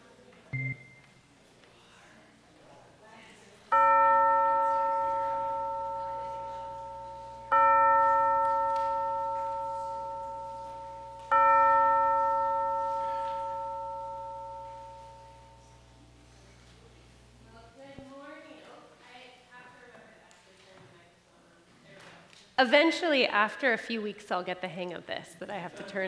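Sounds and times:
bell ringing: 0:03.7 - 0:15.8.

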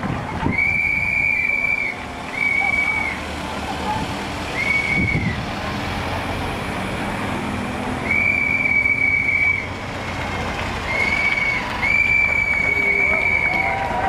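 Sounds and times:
vehicles rumbling past: 0:00.0 - 0:14.0
whistle blasts: 0:00.5 - 0:03.2, 0:04.6 - 0:05.4, 0:08.0 - 0:09.7, 0:10.9 - 0:13.8.

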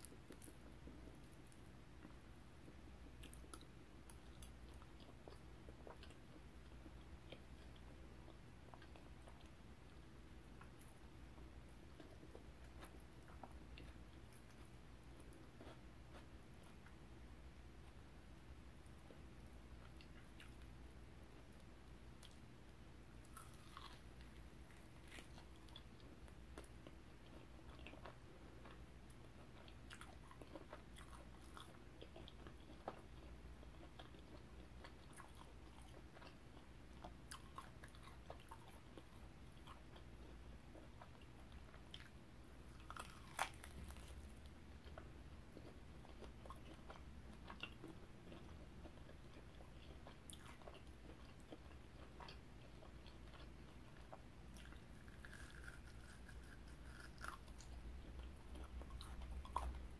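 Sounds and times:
chewing and biting clicks: 0:42.8 - 0:59.8.

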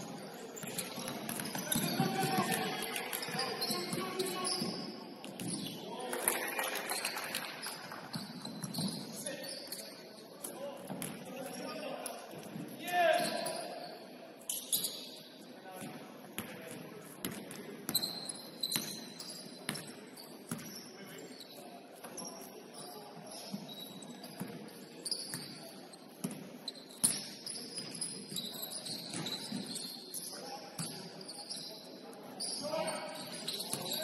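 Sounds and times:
sneaker squeaks on floor: 0:00.0 - 0:05.9, 0:07.0 - 0:10.3, 0:12.5 - 0:15.3, 0:17.9 - 0:34.0
basketball bouncing on court: 0:00.6 - 0:05.7, 0:19.7 - 0:19.9, 0:20.5 - 0:20.7.

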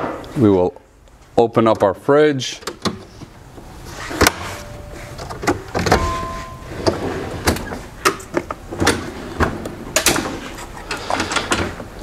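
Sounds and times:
latch clicks and knocks: 0:05.2 - 0:09.0.

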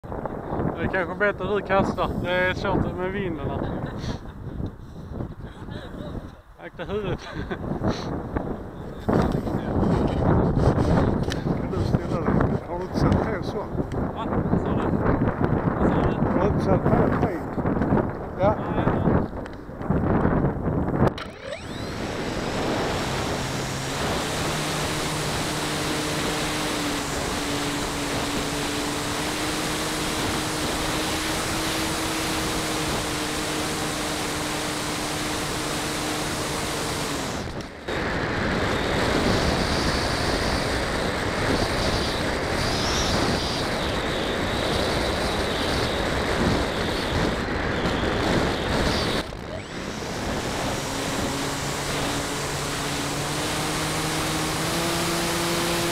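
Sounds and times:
wind rushing: 0:07.5 - 0:55.9
model airplane motor humming: 0:20.1 - 0:55.9.

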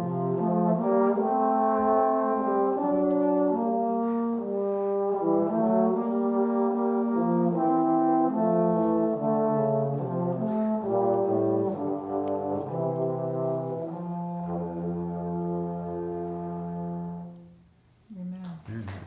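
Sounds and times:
trombone duet: 0:00.0 - 0:17.6.

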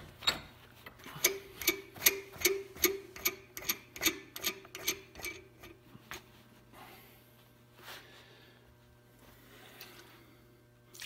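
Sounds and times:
nut clicking on threaded bolt: 0:01.2 - 0:05.4.

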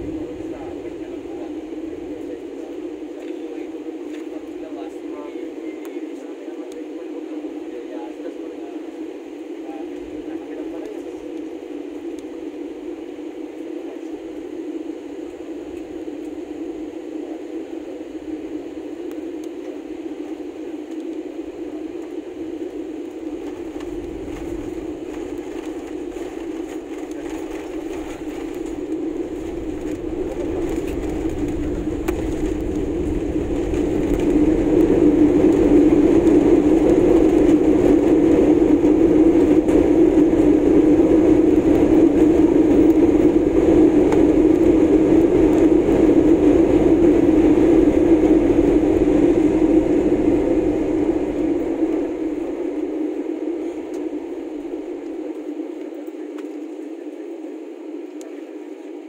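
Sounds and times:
wheels rumbling on runway: 0:00.0 - 0:05.3, 0:19.6 - 0:55.1
jet engine drone in cabin: 0:00.0 - 0:59.0
jet engine reverse thrust roar: 0:00.0 - 0:59.0.

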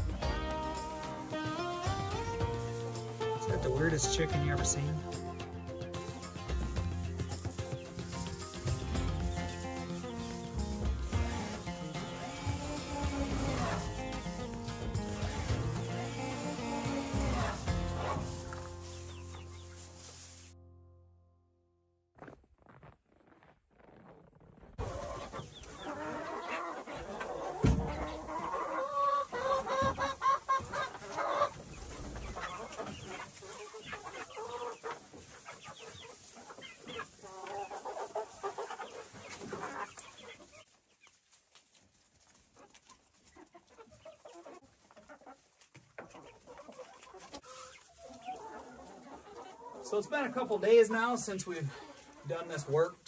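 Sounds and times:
chickens clucking: 0:00.0 - 0:20.4, 0:22.2 - 0:53.0
thud: 0:27.6 - 0:28.0.

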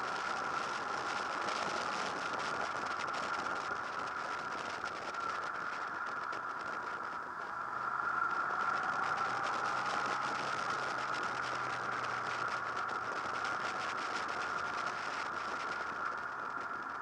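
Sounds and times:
motorcycle engine running: 0:00.0 - 0:17.0
road noise: 0:00.0 - 0:17.0
wind noise: 0:00.0 - 0:17.0.

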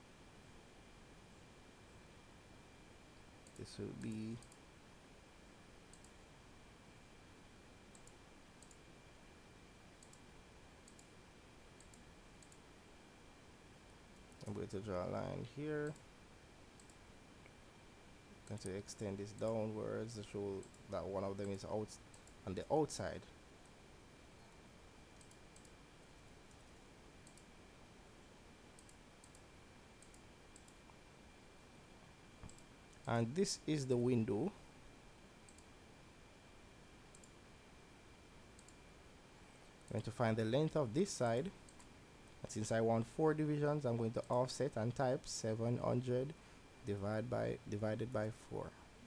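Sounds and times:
quiet background hiss: 0:00.0 - 0:49.0
computer mouse clicks: 0:03.4 - 0:04.6, 0:05.9 - 0:06.2, 0:07.9 - 0:08.8, 0:10.0 - 0:10.2, 0:10.8 - 0:11.1, 0:11.8 - 0:12.6, 0:16.8 - 0:17.0, 0:21.4 - 0:22.4, 0:25.2 - 0:25.8, 0:26.5 - 0:27.5, 0:28.8 - 0:30.9, 0:32.4 - 0:33.1, 0:35.5 - 0:35.7, 0:37.1 - 0:37.4, 0:38.6 - 0:38.8.

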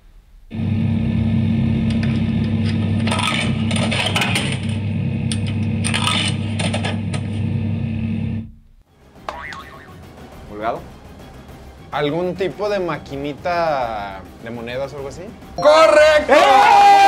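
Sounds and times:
coin machine humming: 0:00.6 - 0:08.5.

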